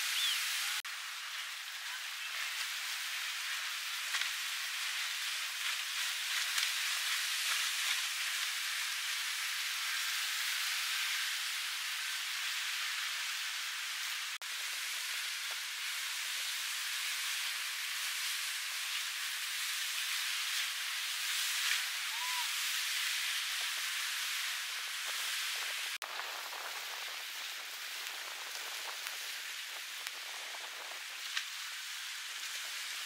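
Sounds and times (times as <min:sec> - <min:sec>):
rain falling: 0:21.8 - 0:33.0.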